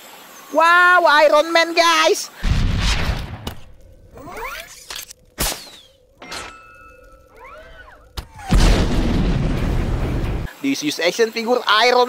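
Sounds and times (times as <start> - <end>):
loud boom: 2.4 - 3.8, 8.2 - 10.5
mechanical whirs: 2.4 - 10.6.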